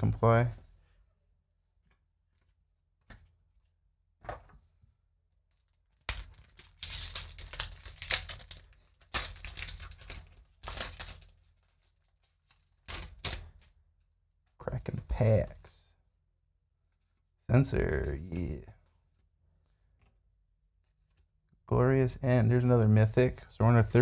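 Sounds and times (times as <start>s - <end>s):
foil wrapper crinkling: 5.5s - 13.7s.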